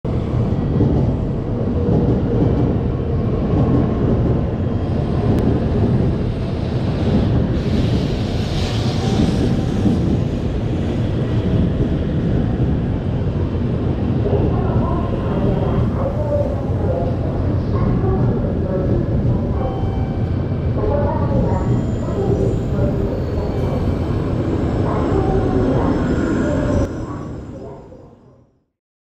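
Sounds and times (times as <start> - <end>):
train low rumble: 0.1 - 28.5
train rushing hiss: 7.5 - 10.0.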